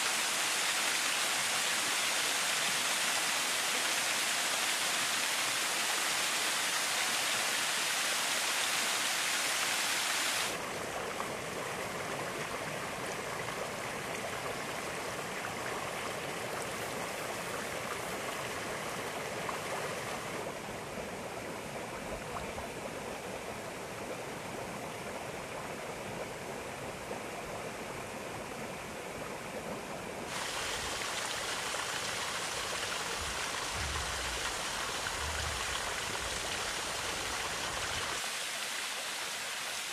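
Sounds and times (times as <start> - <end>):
running and bubbling water: 0.0 - 39.9
water splashing over rocks: 30.3 - 39.0.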